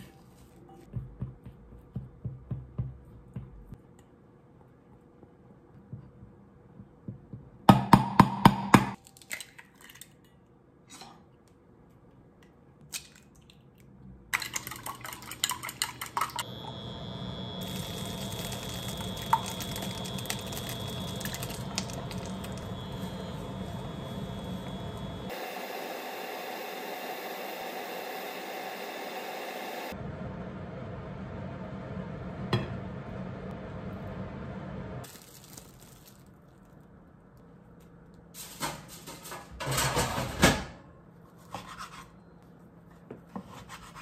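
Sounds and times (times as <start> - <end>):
egg sizzling in a frying pan: 17.4 - 25.4.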